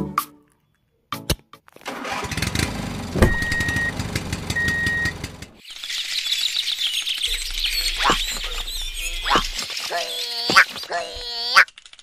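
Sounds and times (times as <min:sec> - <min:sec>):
tractor engine rattling: 0:01.8 - 0:05.6
bird-like chirping: 0:05.6 - 0:11.8.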